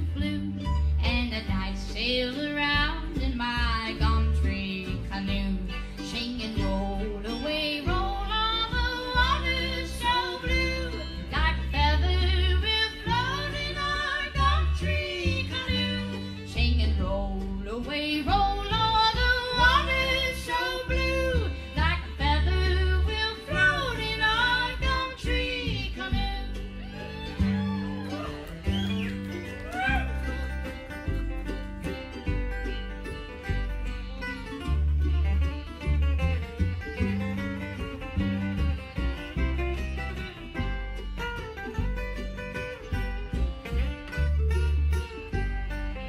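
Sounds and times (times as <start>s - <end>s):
woman singing: 0.0s - 28.1s
string band playing: 0.0s - 46.0s
upright bass notes: 0.0s - 46.0s.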